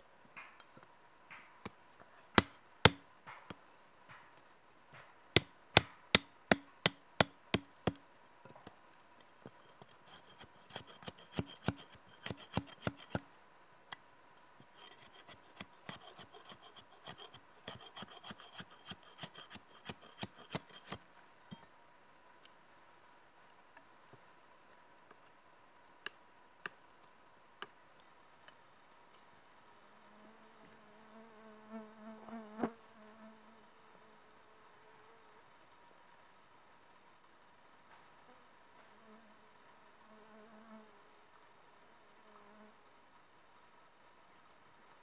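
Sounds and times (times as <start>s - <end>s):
hatchet chopping wooden stick: 1.3s - 4.3s, 4.9s - 8.0s, 9.8s - 13.2s, 14.8s - 21.0s
hatchet scraping wood: 2.4s - 3.4s, 5.4s - 8.0s, 9.4s - 13.3s, 14.6s - 21.7s.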